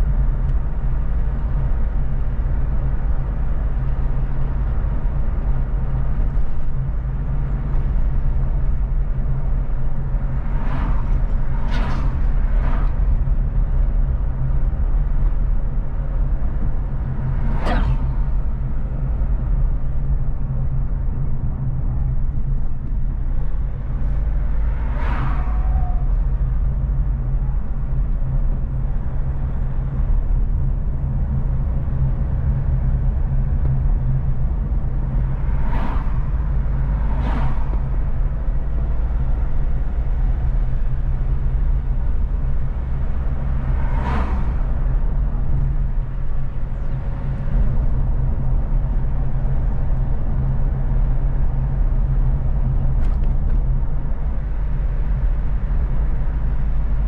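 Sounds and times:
car driving at highway speed: 0.0s - 57.0s
road noise: 0.0s - 57.0s
passing whooshes: 16.9s - 18.7s, 34.9s - 39.0s.

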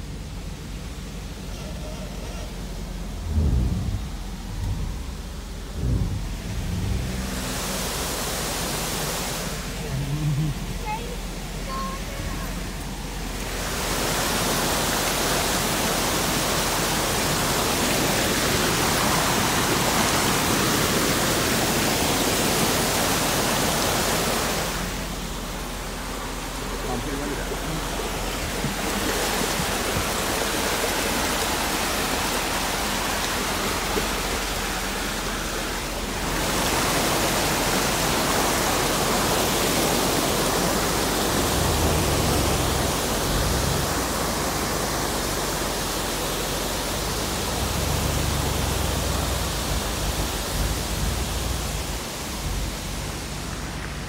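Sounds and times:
low rumble: 0.0s - 8.7s, 9.4s - 13.7s
water rushing over rocks: 0.0s - 54.0s.

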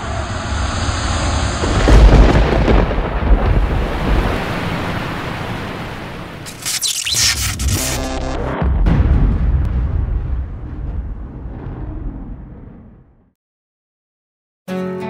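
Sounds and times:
deep rumbling boom: 1.2s - 5.0s, 8.6s - 13.4s.

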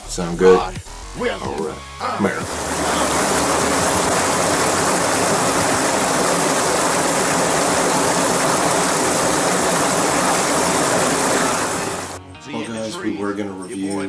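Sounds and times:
creek water rushing: 2.4s - 12.2s.

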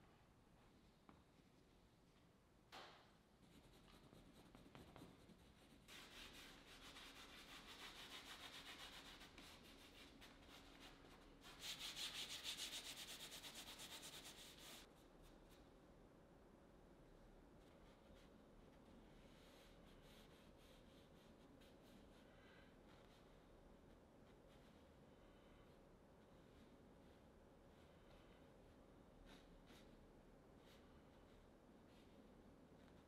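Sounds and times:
paintbrush scrubbing on canvas: 24.2s - 33.0s.

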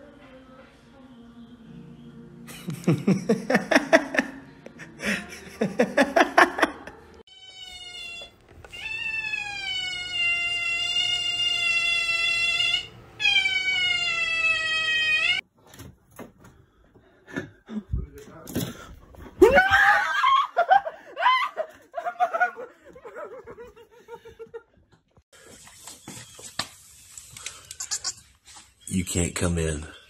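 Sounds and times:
small pet wailing: 7.3s - 15.4s.

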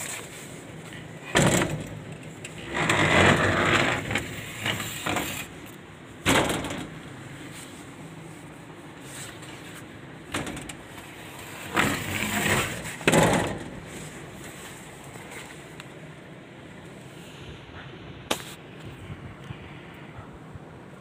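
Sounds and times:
elevator doors sliding and banging: 0.0s - 8.3s, 9.0s - 16.2s
elevator car steady hum: 0.0s - 21.0s.

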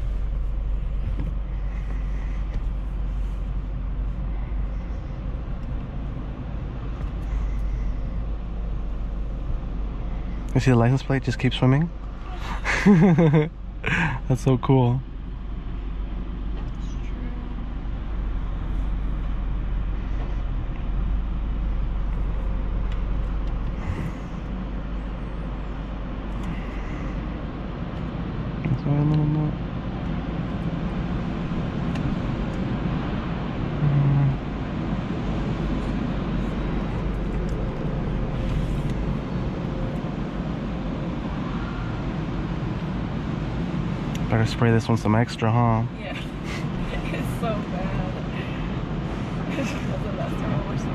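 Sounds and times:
car wash hum and rush: 0.0s - 50.9s
low buzzing tones: 33.7s - 34.5s.

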